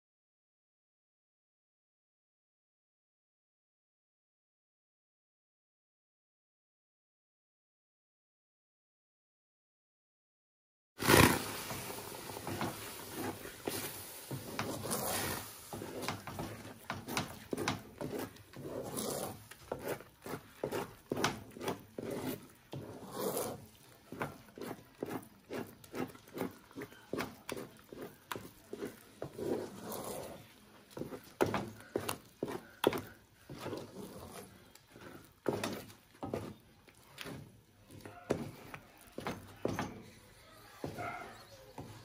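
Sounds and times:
wooden spoon scraping metal pot: 11.0 - 42.0.

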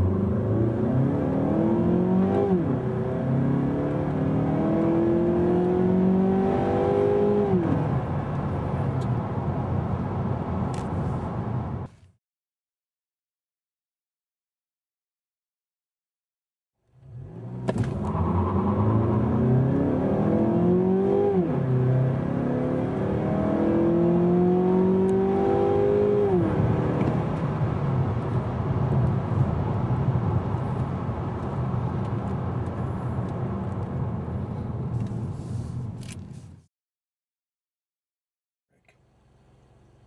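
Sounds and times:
car engine revving at full throttle: 0.0 - 9.0, 17.0 - 31.2
road noise inside car: 0.0 - 12.2, 16.8 - 36.7, 38.7 - 40.0.

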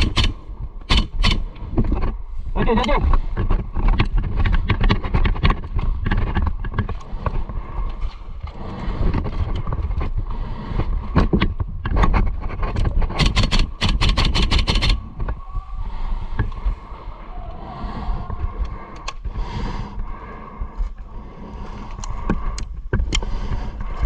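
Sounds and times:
airsoft gun rapid firing: 0.0 - 1.5, 13.1 - 15.0
sharp clicks: 0.0 - 1.7, 12.8 - 15.1
low rumble: 14.6 - 24.0.

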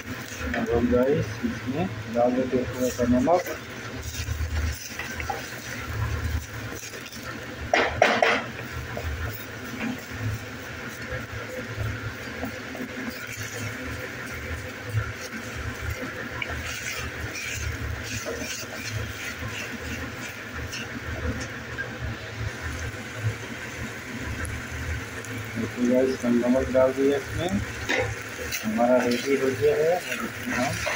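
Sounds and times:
spatula scraping metal pan: 27.8 - 30.9.

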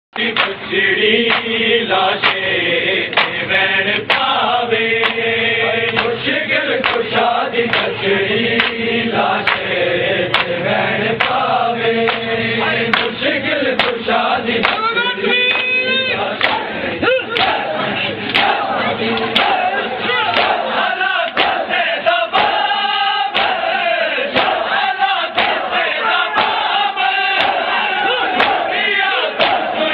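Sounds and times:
voices chanting in unison: 0.2 - 29.9
hand slaps on chests: 0.3 - 0.6, 1.3 - 1.5, 2.2 - 2.4, 5.0 - 5.2, 5.9 - 6.2, 6.8 - 7.1, 7.7 - 7.9, 8.6 - 8.8, 9.4 - 9.6, 10.3 - 10.6, 12.1 - 12.3, 12.9 - 13.2, 13.8 - 14.0, 14.6 - 14.9, 16.4 - 16.7, 17.3 - 17.6, 18.2 - 18.6, 19.2 - 19.6, 20.3 - 20.6, 21.3 - 21.6, 22.3 - 22.7, 23.3 - 23.7, 24.3 - 25.8, 26.4 - 26.7, 27.4 - 27.7, 28.3 - 28.7, 29.4 - 29.8.

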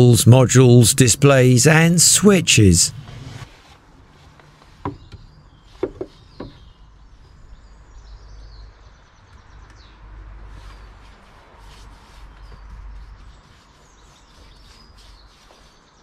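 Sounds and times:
hard objects knocking: 5.8 - 6.6.

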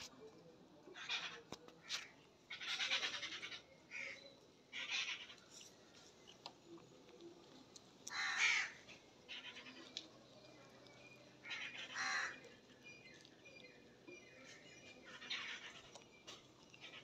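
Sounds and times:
harsh caw-like bird calls: 1.0 - 5.5, 8.1 - 10.0, 11.4 - 12.5.

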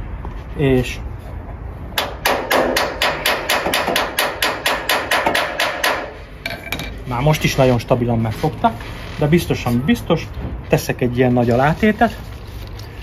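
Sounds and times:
hammer ringing on metal: 2.0 - 6.2.

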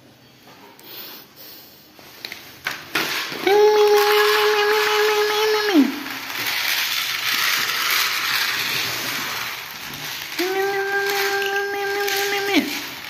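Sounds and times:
kibble pouring onto plastic tray: 2.7 - 13.0
kittens crunching food: 3.7 - 13.0.

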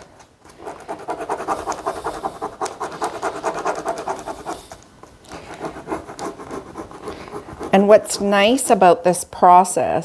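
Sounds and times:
scratchy rubbing on paper: 0.6 - 4.8, 5.4 - 8.3.

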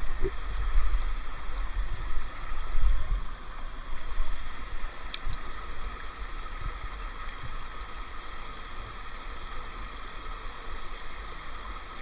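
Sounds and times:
metallic clink of hardware: 5.2 - 5.4.

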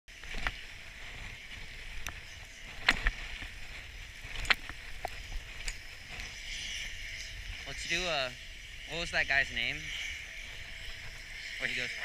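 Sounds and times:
ski gear clicks and knocks: 0.1 - 6.3
skis sliding on snow: 0.1 - 12.0.

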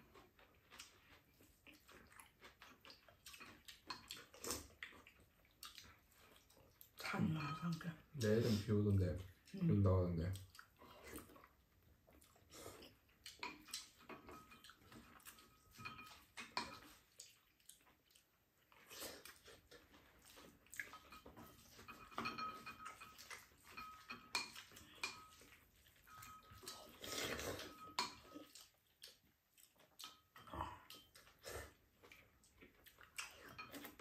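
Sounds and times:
chewing: 0.0 - 34.0
utensils clicking on ceramic bowls: 13.4 - 17.0, 20.9 - 25.5, 26.1 - 28.3
slurping from a spoon: 26.6 - 28.2.

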